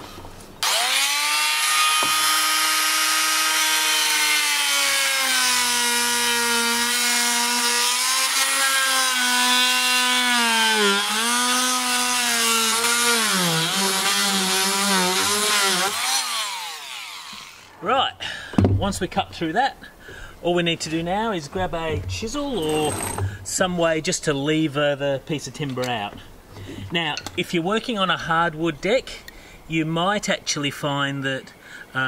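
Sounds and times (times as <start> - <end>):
multi-tool cutting wood: 0.6 - 17.8, 22.2 - 23.5.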